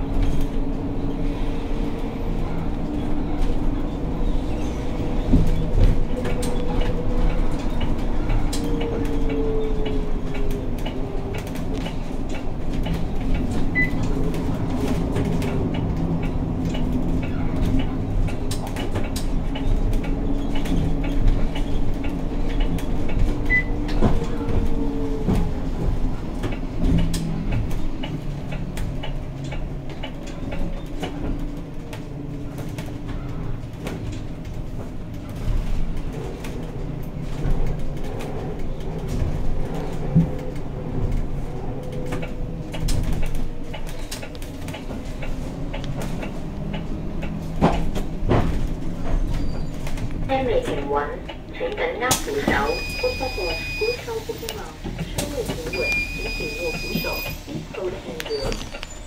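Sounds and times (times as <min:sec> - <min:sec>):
bus drivetrain hum and whine: 0:00.0 - 0:59.0
high beeps: 0:52.4 - 0:54.0, 0:55.7 - 0:57.4.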